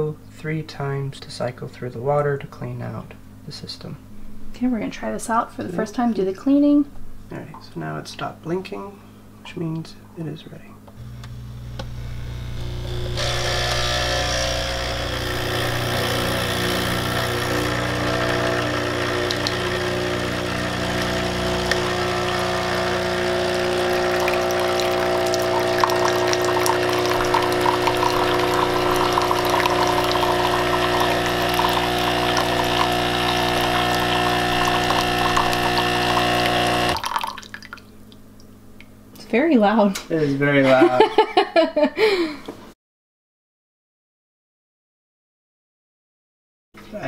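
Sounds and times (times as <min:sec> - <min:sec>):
coffee machine pump humming: 0:11.0 - 0:38.2
water streaming into a mug: 0:14.1 - 0:37.9.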